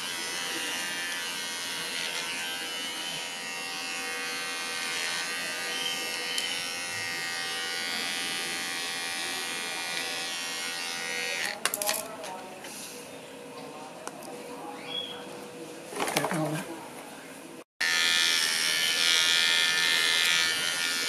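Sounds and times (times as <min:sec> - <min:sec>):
electric pet clipper humming: 0:00.0 - 0:11.6, 0:17.8 - 0:21.0.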